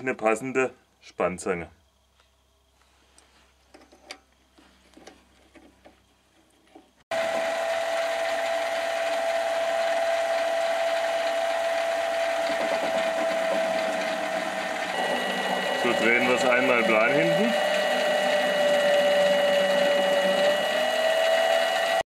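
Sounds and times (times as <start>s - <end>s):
lathe motor whine: 7.1s - 22.0s.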